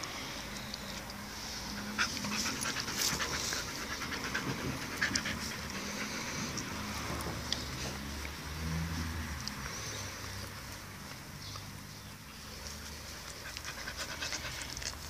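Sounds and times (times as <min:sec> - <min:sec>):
dogs panting: 0:00.5 - 0:08.4, 0:12.4 - 0:15.0.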